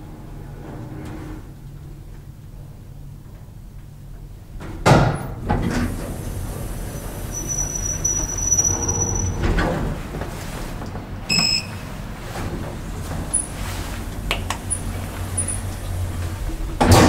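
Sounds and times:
elevator doors opening with clunk: 4.5s - 17.0s
door motor faint high whine: 5.6s - 10.0s
short electronic beep: 11.3s - 11.8s.

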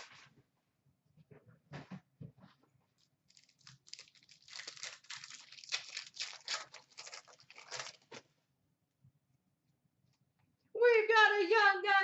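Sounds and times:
foil wrapper crinkling and tearing: 3.0s - 8.3s.

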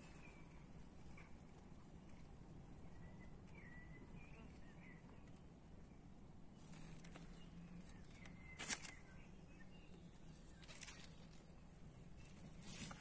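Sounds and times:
brief rustle: 6.6s - 9.1s, 10.5s - 11.5s, 12.3s - 13.0s.

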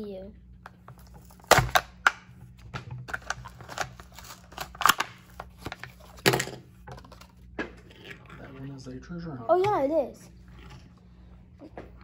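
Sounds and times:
blister package crackling: 3.1s - 5.6s.

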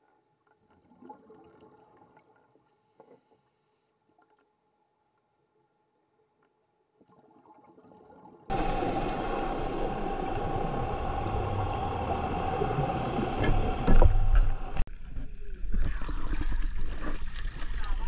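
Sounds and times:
water gurgling: 7.2s - 18.0s
underwater hum with high whine: 8.5s - 18.0s.

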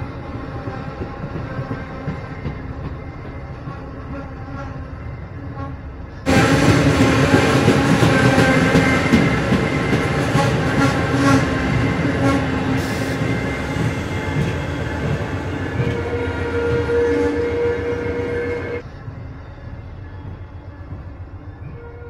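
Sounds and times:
train wheels rumbling on rails: 0.0s - 22.0s
train horn: 3.7s - 18.8s, 21.6s - 22.0s.

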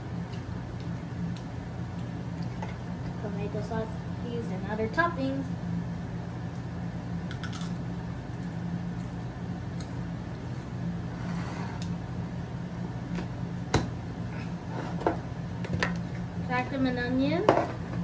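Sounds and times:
steady low hum: 0.0s - 18.0s
potato crisp crunching: 7.3s - 10.0s.

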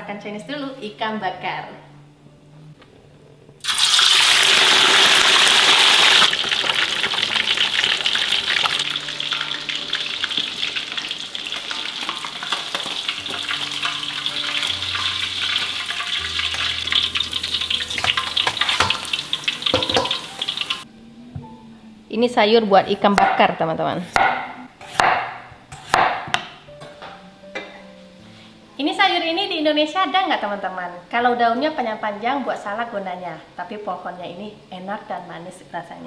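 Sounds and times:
fish sizzling in hot oil: 3.6s - 20.8s.

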